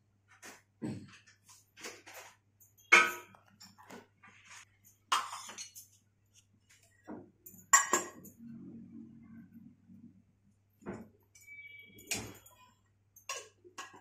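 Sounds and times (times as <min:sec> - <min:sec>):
sharp metallic clinks: 0:11.3 - 0:13.3.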